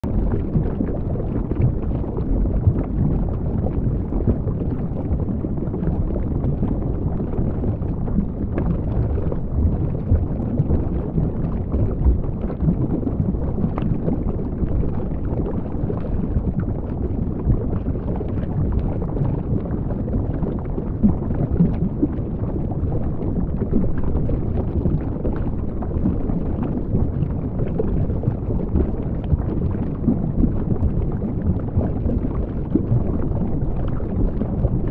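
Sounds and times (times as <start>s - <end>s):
faint clicks and crackles: 0.0s - 34.9s
muffled underwater water rumble: 0.0s - 34.9s.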